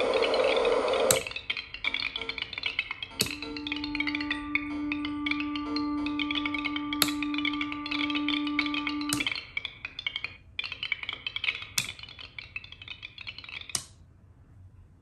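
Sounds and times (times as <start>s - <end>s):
held tone from speaker: 3.3s - 9.3s.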